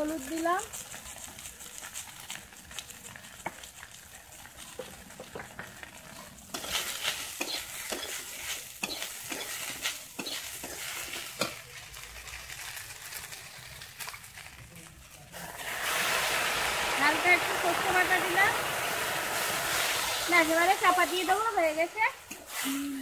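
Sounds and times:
food sizzling in a wok: 0.0 - 23.0
metal spatula scraping a wok: 4.8 - 14.1.

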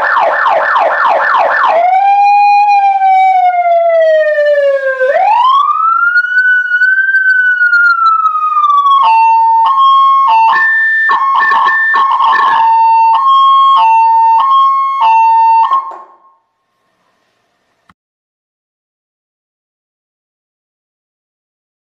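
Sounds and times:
electronic siren wailing: 0.0 - 16.4.

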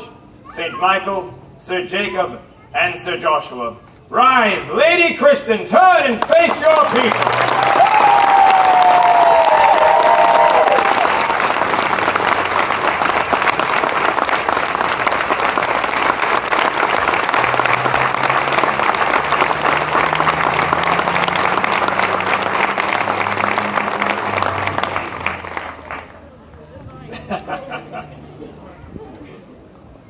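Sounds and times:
crowd clapping: 6.1 - 26.2.

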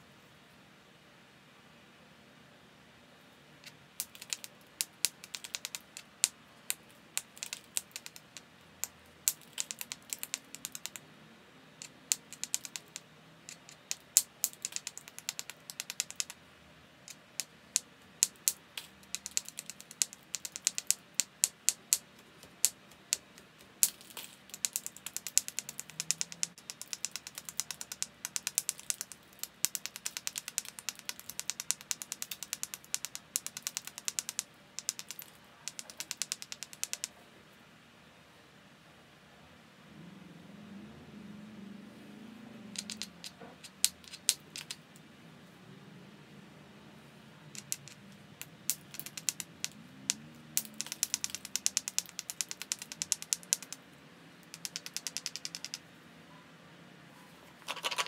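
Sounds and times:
stone striking stone clicks: 3.6 - 11.0, 11.8 - 16.4, 17.1 - 37.2, 42.7 - 44.8, 47.5 - 53.8, 54.4 - 55.8.

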